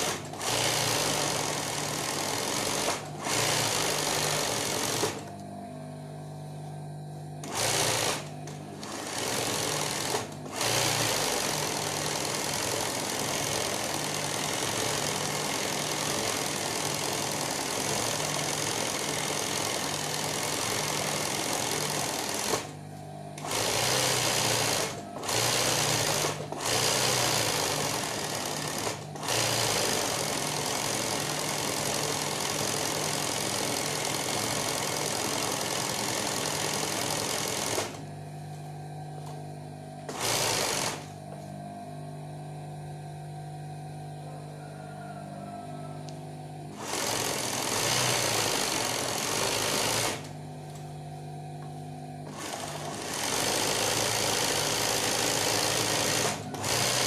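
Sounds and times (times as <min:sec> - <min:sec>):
sewing machine stitching: 0:00.0 - 0:05.3, 0:07.4 - 0:22.8, 0:23.4 - 0:38.0, 0:40.1 - 0:41.1, 0:46.7 - 0:50.3, 0:52.2 - 0:57.0
sewing machine motor hum: 0:00.0 - 0:57.0.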